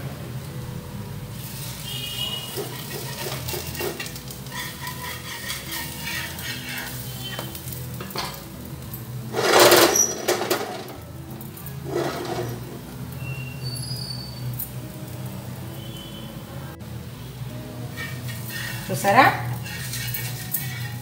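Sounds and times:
batter sizzling on iron pan: 0:01.1 - 0:16.5, 0:17.6 - 0:21.0
pan scraping on burner: 0:01.4 - 0:08.5, 0:09.2 - 0:11.0, 0:11.6 - 0:14.8, 0:17.9 - 0:21.0
metal spatula scraping pan: 0:01.8 - 0:08.2, 0:09.3 - 0:10.9, 0:11.7 - 0:12.9, 0:17.9 - 0:21.0.

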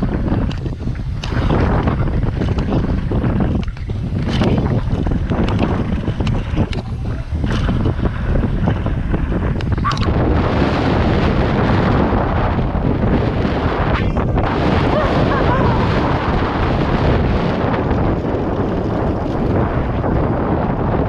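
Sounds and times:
wind buffeting microphone: 0:00.0 - 0:21.0
mountain bike rattling on trail: 0:16.6 - 0:20.6.

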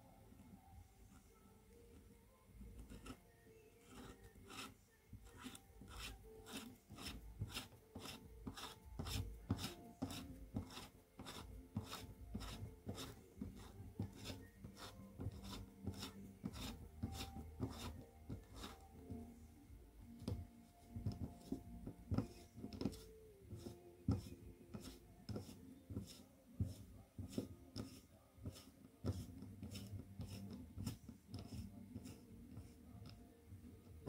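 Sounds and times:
hand scraping strokes: 0:03.8 - 0:18.9.

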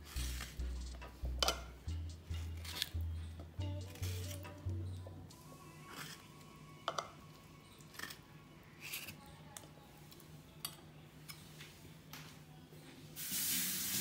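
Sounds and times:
background music with deep bass: 0:00.0 - 0:05.4.

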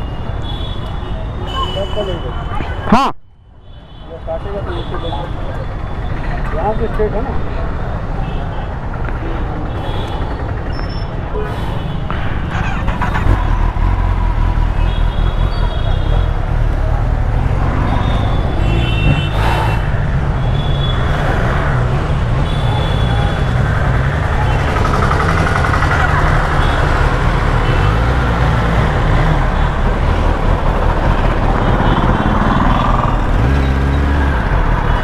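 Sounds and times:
rushing noise: 0:17.2 - 0:20.4
motorcycle engine running: 0:22.5 - 0:33.8.

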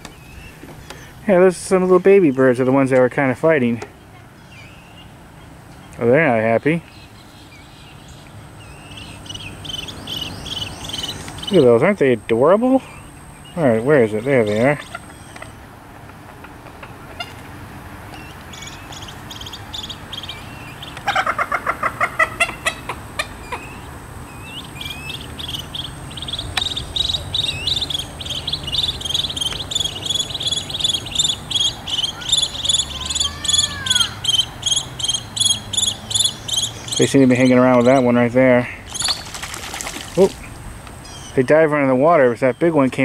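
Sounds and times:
bird clucking: 0:14.5 - 0:17.5, 0:18.2 - 0:23.9
high repeated bird notes: 0:18.5 - 0:38.2, 0:38.8 - 0:39.5.

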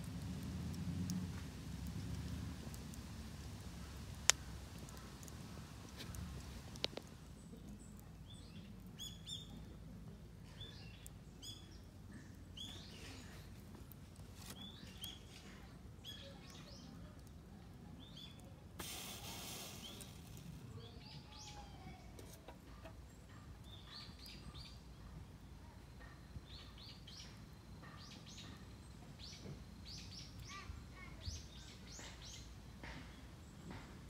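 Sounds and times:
fire popping: 0:00.0 - 0:09.0, 0:16.4 - 0:20.8
wood fire crackling: 0:00.0 - 0:24.3
small bird chirping: 0:05.9 - 0:09.8.

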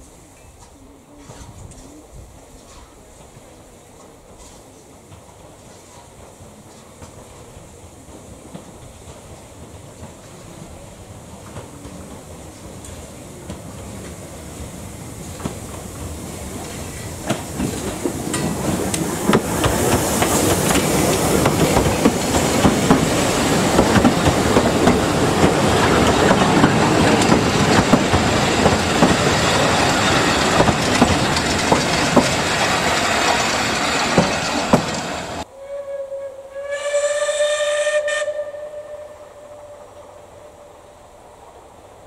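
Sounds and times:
steam train passing: 0:00.0 - 0:42.0
wheels clicking over rail joints: 0:15.2 - 0:35.4
steam locomotive whistle blast: 0:35.5 - 0:40.8.

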